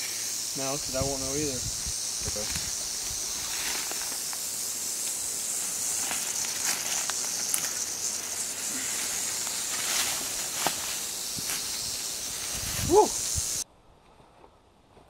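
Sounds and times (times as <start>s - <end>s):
rattlesnake rattling: 0.0s - 13.6s.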